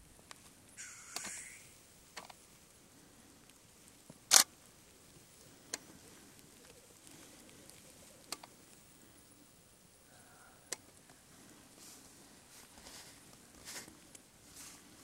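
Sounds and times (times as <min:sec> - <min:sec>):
sharp clicks: 0:00.8 - 0:01.6, 0:04.3 - 0:04.5
grouse low bubbling calls: 0:00.8 - 0:01.8, 0:05.5 - 0:08.5.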